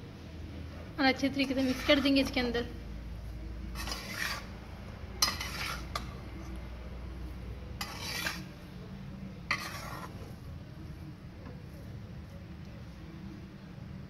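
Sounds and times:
metal spatula scraping a pan: 1.2s - 2.7s, 3.6s - 6.6s, 7.4s - 8.6s, 9.4s - 10.5s.

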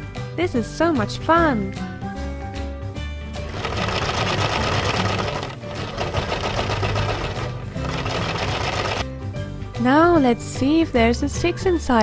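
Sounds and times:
toy washing machine motor buzzing: 3.4s - 9.0s.

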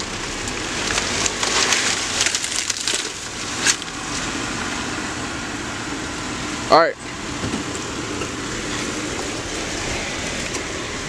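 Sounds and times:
brush and sticks crackling: 0.0s - 4.4s.

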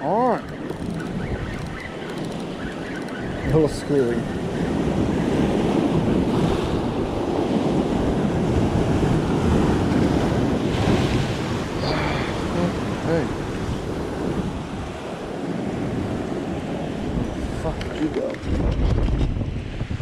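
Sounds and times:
wind buffeting microphone: 0.0s - 20.0s
surf breaking over rocks: 5.9s - 14.6s.

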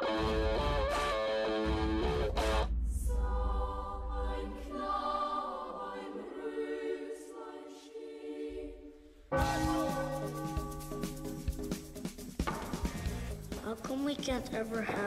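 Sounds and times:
choir singing held chords: 0.1s - 10.9s.

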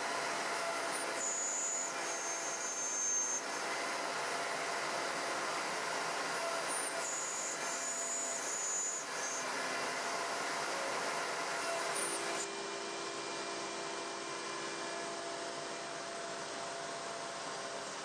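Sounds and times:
router spindle milling: 0.0s - 12.5s
vacuum cleaner running: 9.1s - 18.0s.

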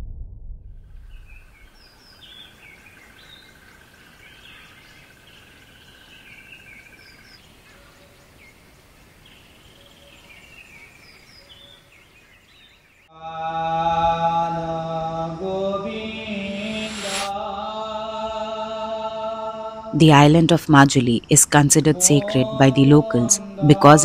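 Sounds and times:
birds chirping and calling: 1.6s - 13.0s
background hiss: 15.9s - 17.3s
high-pitched hum: 16.1s - 17.5s.

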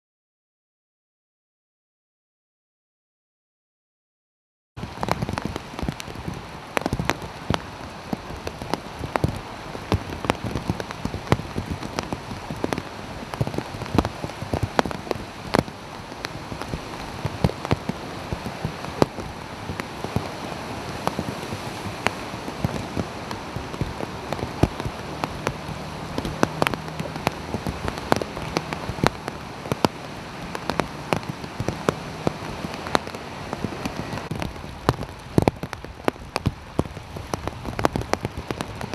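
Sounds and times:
raindrop ticks: 4.8s - 38.9s
steady rain pattering: 4.8s - 38.9s
faint vehicle engine hum: 20.2s - 34.2s.

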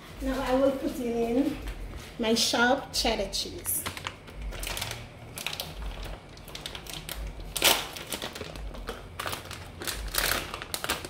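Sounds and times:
plastic bag crinkling: 3.6s - 11.0s.

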